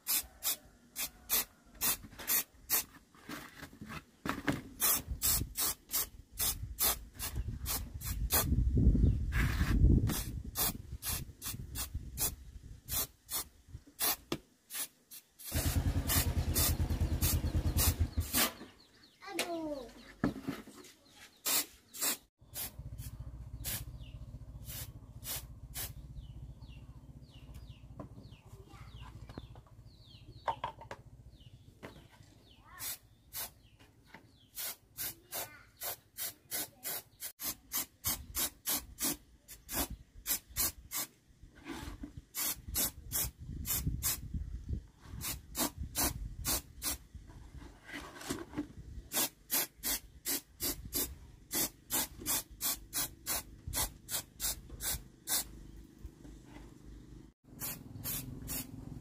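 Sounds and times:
spray-paint can hissing: 0.0s - 2.8s, 4.8s - 8.5s, 10.1s - 18.4s, 21.4s - 23.9s, 24.6s - 26.0s, 32.8s - 33.6s, 34.6s - 41.1s, 42.4s - 44.2s, 45.2s - 47.0s, 49.1s - 55.5s, 57.5s - 58.8s.

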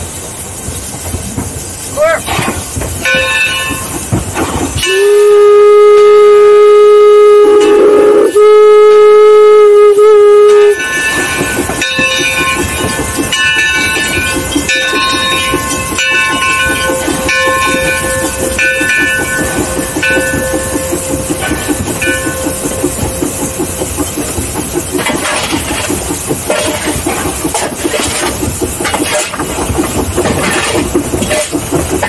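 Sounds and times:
steam hiss: 0.0s - 32.0s
steam locomotive running: 0.0s - 32.0s
steam whistle blast: 4.8s - 11.4s
high ringing squeals: 10.6s - 24.6s.

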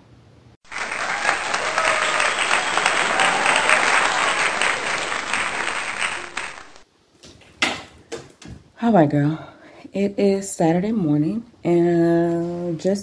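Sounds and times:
crowd applauding: 0.6s - 6.8s.

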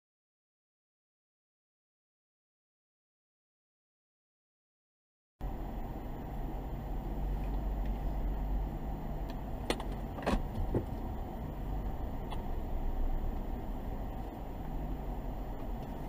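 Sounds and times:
car engine rumble: 5.4s - 16.0s
road noise: 5.4s - 16.0s.

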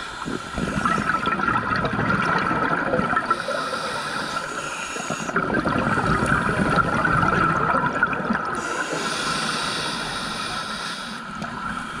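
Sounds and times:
regulator inhalation hiss: 0.0s - 1.1s, 3.3s - 5.4s, 8.6s - 12.0s
exhaled bubbles underwater: 0.0s - 12.0s.

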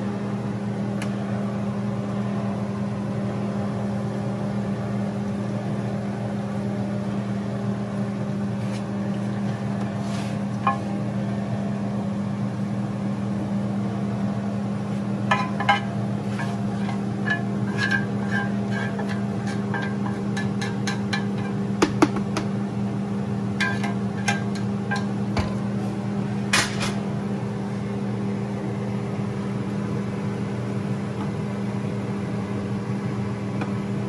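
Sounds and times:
low mechanical hum: 0.0s - 34.0s
spatula tapping a pan: 15.3s - 16.5s, 17.2s - 22.6s, 23.6s - 25.6s.

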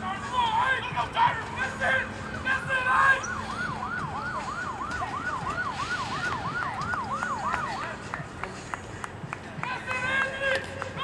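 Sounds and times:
voices: 0.0s - 3.4s, 4.0s - 11.0s
siren yelping: 1.7s - 8.0s.

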